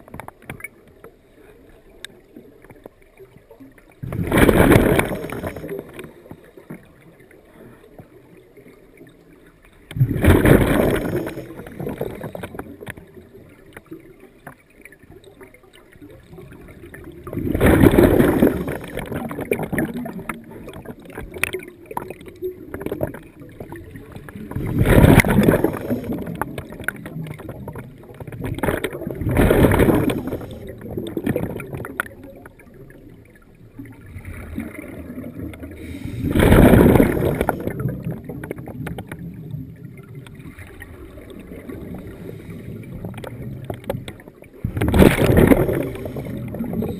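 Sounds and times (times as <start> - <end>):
bubbling air from diver exhaling: 4.0 - 6.0, 10.0 - 12.8, 16.7 - 32.4, 34.1 - 43.9, 44.6 - 46.9.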